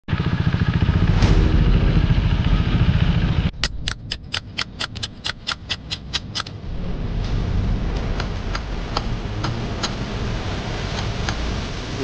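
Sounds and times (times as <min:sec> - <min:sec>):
motorcycle engine rumbling: 0:00.1 - 0:05.9
sharp clicks: 0:03.5 - 0:06.6.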